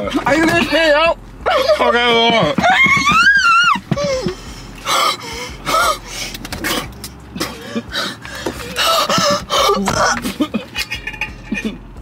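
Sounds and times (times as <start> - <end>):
person gasping and panting: 3.9 - 6.4, 7.4 - 10.4.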